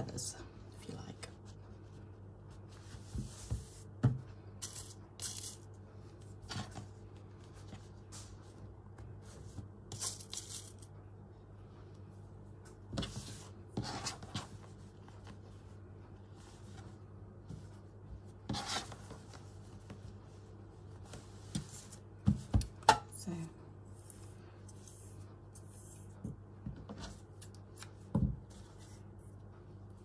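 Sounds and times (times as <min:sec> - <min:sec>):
steady low hum: 0:00.0 - 0:30.0
fabric rustling and scraping: 0:01.3 - 0:05.5, 0:06.1 - 0:10.8, 0:12.8 - 0:22.5.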